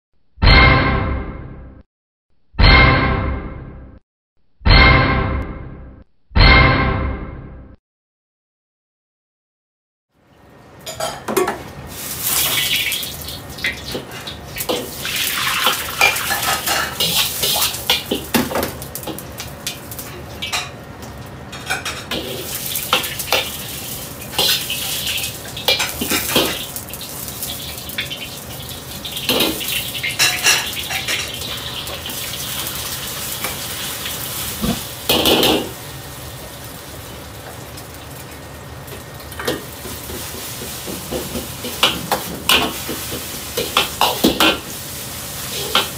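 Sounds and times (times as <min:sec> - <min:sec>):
egg sizzling in hot oil: 0:11.9 - 0:20.6, 0:22.1 - 0:45.9
gas burner hissing: 0:22.1 - 0:37.6, 0:38.9 - 0:45.9.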